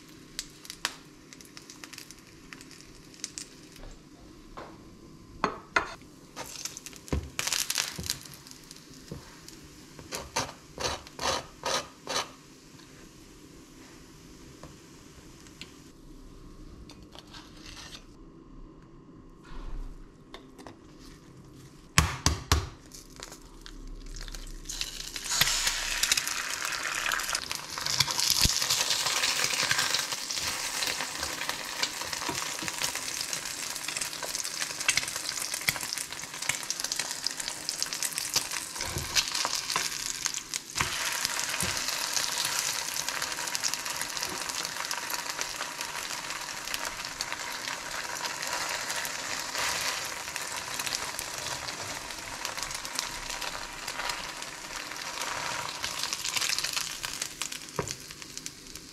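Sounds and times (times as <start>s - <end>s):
egg sizzling in frying pan: 0.0s - 3.8s, 6.4s - 12.4s, 24.1s - 58.9s.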